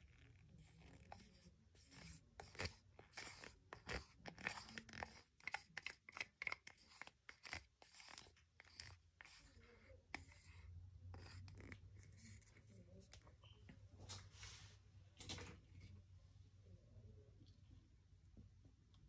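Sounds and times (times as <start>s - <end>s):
stir stick scraping paint in cup: 0.0s - 13.6s.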